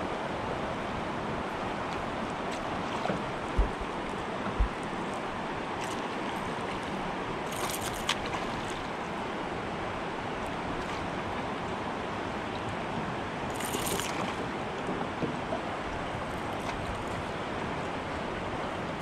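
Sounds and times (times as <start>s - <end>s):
river water rushing: 0.0s - 19.0s
fish splashing at surface: 7.5s - 8.8s, 13.5s - 14.4s.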